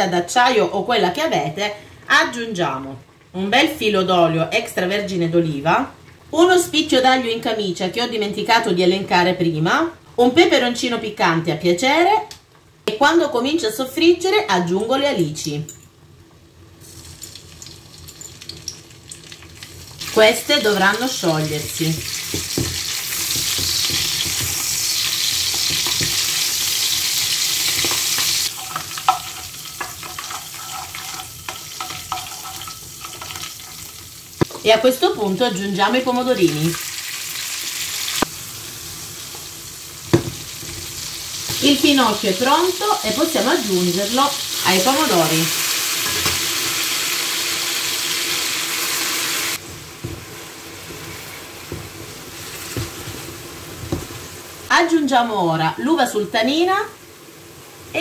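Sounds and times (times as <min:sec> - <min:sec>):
oil sizzling in a frying pan: 0:15.9 - 0:58.0
wooden spoon knocking a pan: 0:22.2 - 0:24.6, 0:50.0 - 0:50.3
wooden spoon scraping a pan: 0:27.6 - 0:33.9.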